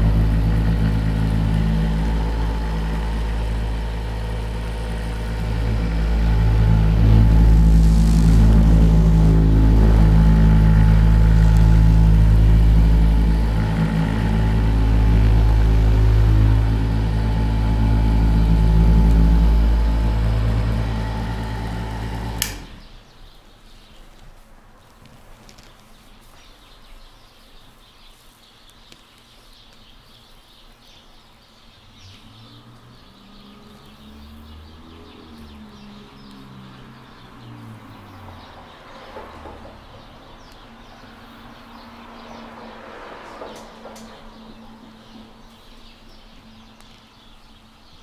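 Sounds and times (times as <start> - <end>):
small electric motor humming: 0.0 - 23.0
switch click: 21.4 - 22.8
light rustling and ticks: 24.0 - 26.9.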